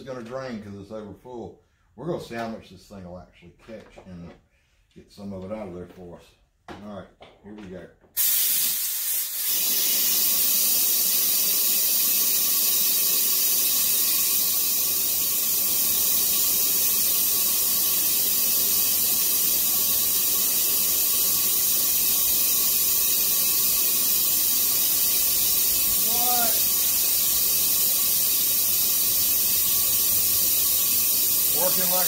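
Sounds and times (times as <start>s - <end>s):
air vacuum pump hissing: 8.2s - 32.0s.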